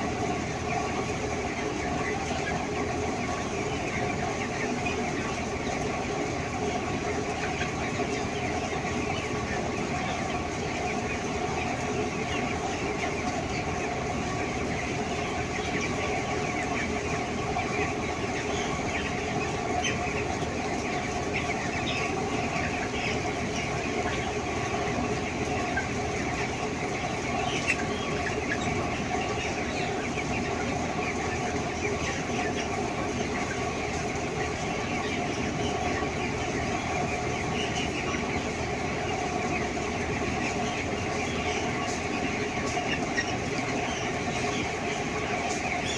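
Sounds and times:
chickens clucking and chirping: 0.0 - 45.9.

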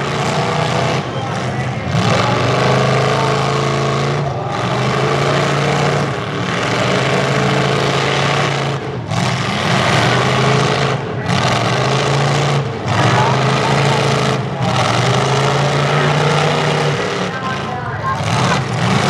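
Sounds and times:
truck engines revving: 0.0 - 19.0.

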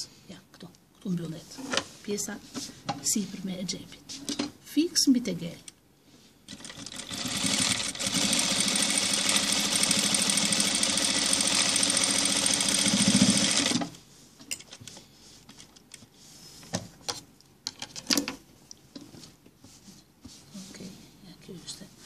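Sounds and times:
sewing machine stitching: 6.5 - 14.0.

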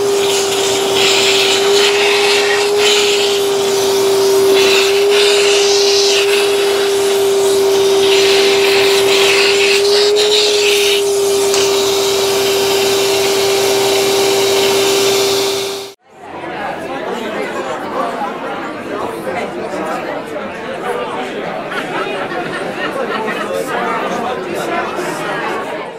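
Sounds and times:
rush of air through nozzle: 0.0 - 16.0
wet dry vacuum motor whine: 0.0 - 16.0.

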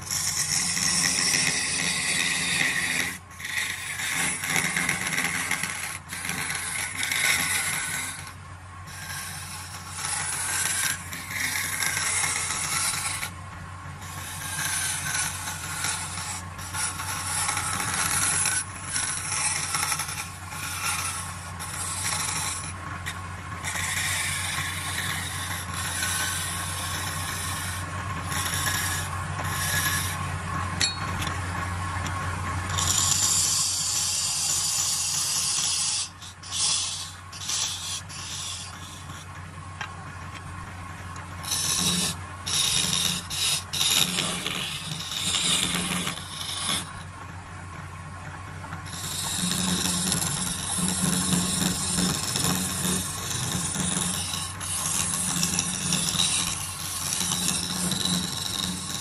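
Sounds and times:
turning tool scraping wood: 0.0 - 59.0
wood lathe humming: 0.0 - 59.0.

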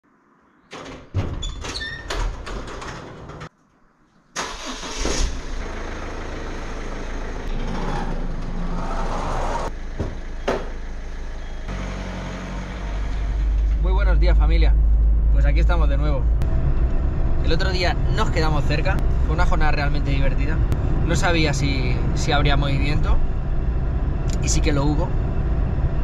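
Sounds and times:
metal garage door clattering: 0.7 - 3.5, 7.3 - 11.6
car engine idling: 4.4 - 25.8.

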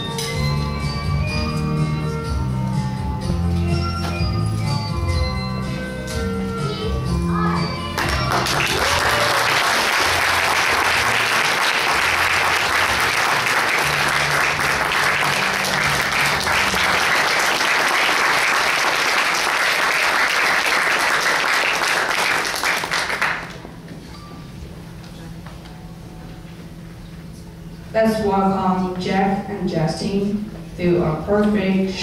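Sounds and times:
audience applauding: 8.0 - 23.7.

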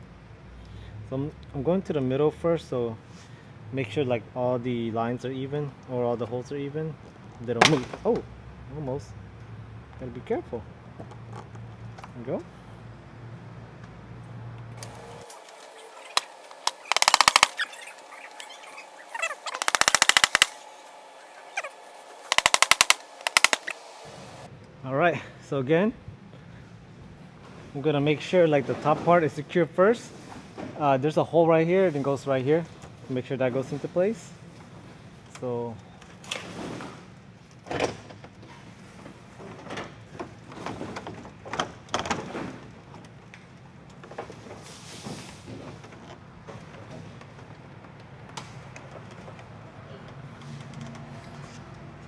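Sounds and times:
ratchet wrench clicking: 16.0 - 17.7, 19.4 - 20.6, 22.3 - 23.8.

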